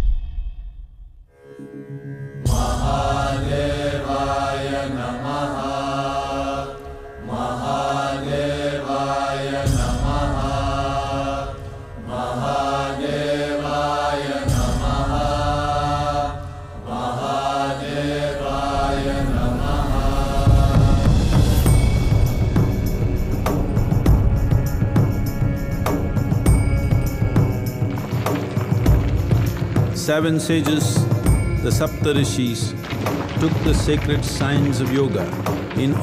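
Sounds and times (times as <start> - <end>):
mantra chanting: 29.9 - 36.0.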